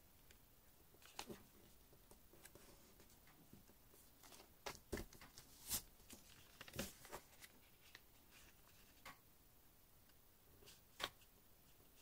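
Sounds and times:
paper folding crackles and rustles: 0:01.0 - 0:09.1.

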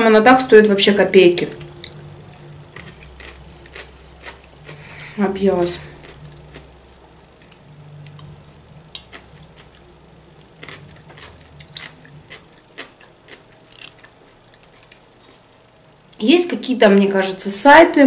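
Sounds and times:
quiet chewing of vegetables: 0:01.8 - 0:05.2, 0:05.8 - 0:15.6.

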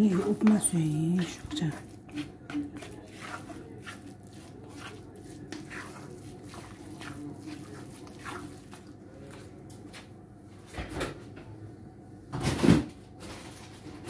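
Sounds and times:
wooden spatula scraping pan: 0:00.0 - 0:10.1
low steady hum: 0:00.0 - 0:12.3.

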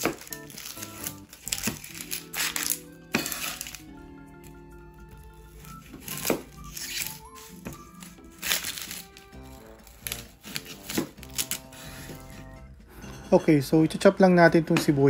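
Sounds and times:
knife slicing onion: 0:00.0 - 0:03.9, 0:05.6 - 0:12.5
background music: 0:00.0 - 0:15.0.

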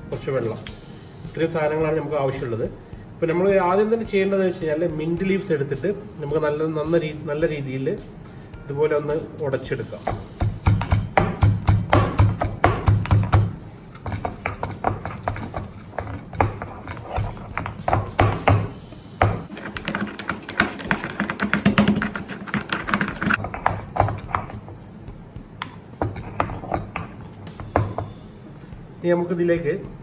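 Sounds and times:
background music: 0:00.0 - 0:30.0
pestle pounding in stone mortar: 0:10.0 - 0:24.7, 0:25.5 - 0:28.2.

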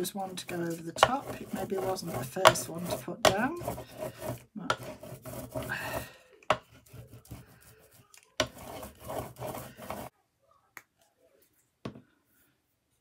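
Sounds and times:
tool scraping paint on paper: 0:00.0 - 0:10.1.

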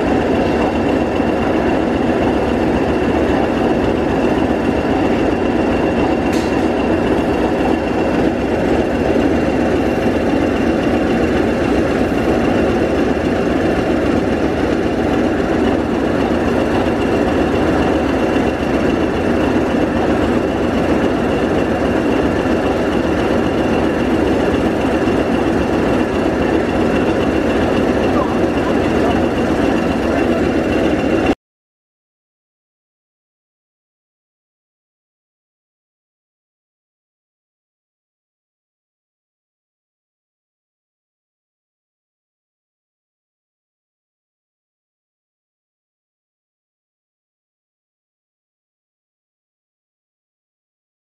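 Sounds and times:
diesel locomotive engine idling: 0:00.0 - 0:31.4.

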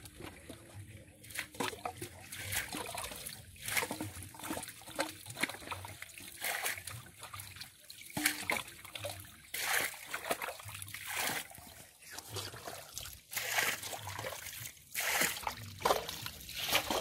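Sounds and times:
water trickling down a channel: 0:00.0 - 0:17.0.

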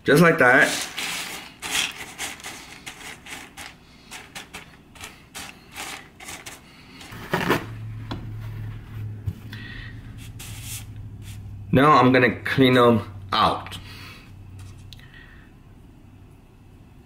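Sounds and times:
dry beans clicking and rattling: 0:00.6 - 0:07.2
low hum: 0:07.1 - 0:17.0.

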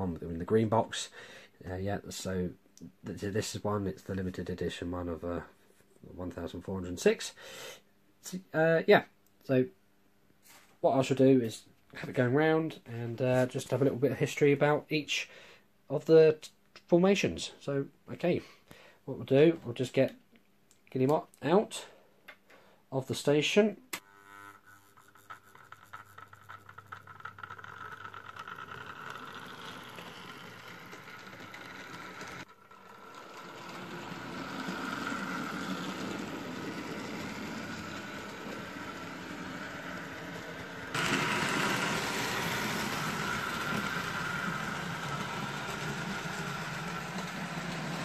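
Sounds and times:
model train motor whirring: 0:24.1 - 0:48.0.

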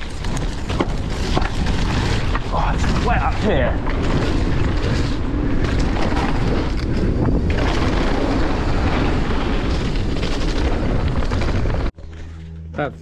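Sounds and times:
bike knocking and rattling: 0:00.0 - 0:12.4
bike tyre noise: 0:00.0 - 0:12.4
wind on microphone: 0:03.8 - 0:11.9.

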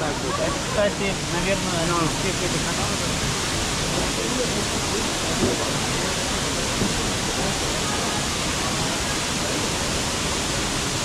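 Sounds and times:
waterfall rushing: 0:00.0 - 0:11.0.

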